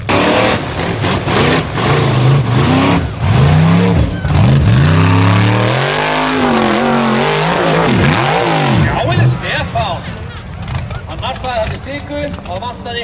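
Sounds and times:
racing engine revving hard: 0.0 - 9.8.

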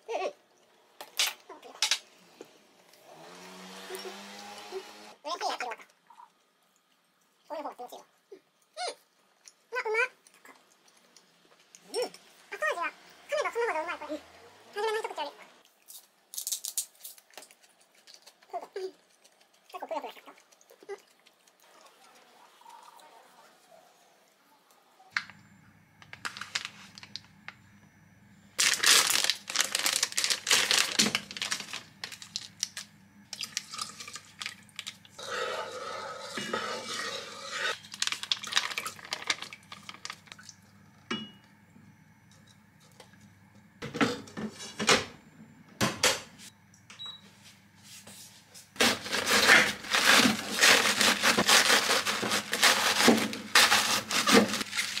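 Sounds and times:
crinkling and clattering: 26.0 - 27.2, 28.6 - 35.0, 37.8 - 40.4, 48.8 - 55.0
knife cutting cabbage: 48.8 - 55.0.

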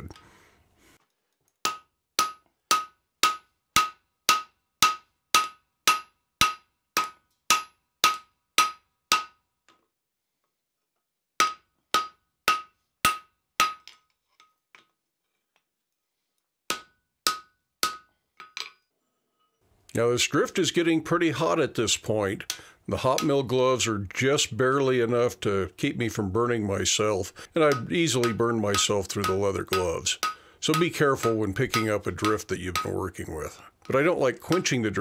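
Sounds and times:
hammer striking steel: 1.6 - 9.4, 11.4 - 14.0, 16.7 - 18.8, 27.6 - 33.0.

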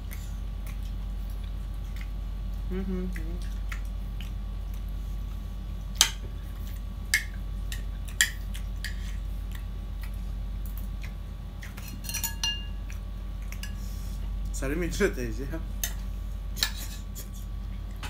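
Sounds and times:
mouth chewing and smacking: 0.0 - 11.9, 12.8 - 14.6
low electrical hum: 0.0 - 18.0.

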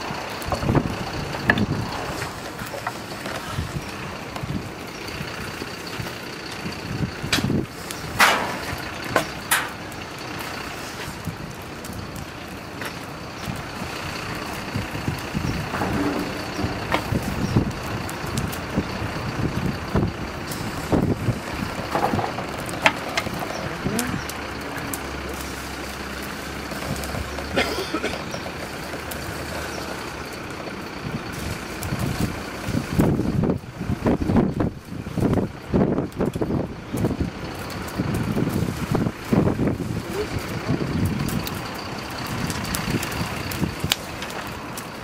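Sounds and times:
fire popping and cracking: 0.0 - 45.0
wood fire rushing: 0.0 - 45.0.

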